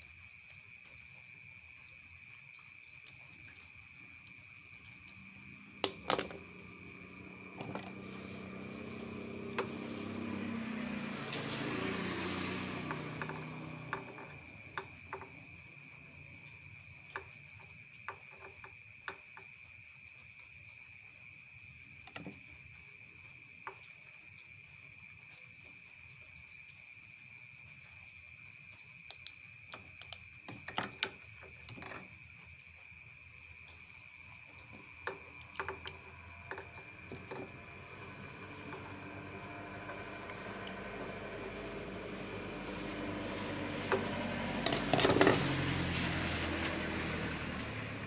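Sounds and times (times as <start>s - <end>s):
cricket trill: 0.0s - 48.0s
small plastic parts clicking: 4.9s - 6.6s
vehicle passing: 6.4s - 15.0s, 35.3s - 48.0s.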